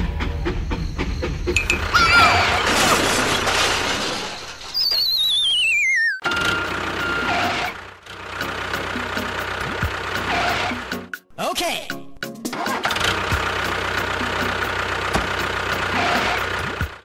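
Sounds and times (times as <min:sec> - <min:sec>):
falling warbling whistle: 0:01.5 - 0:02.7, 0:04.7 - 0:06.2
cartoon clattering crash: 0:01.6 - 0:05.6.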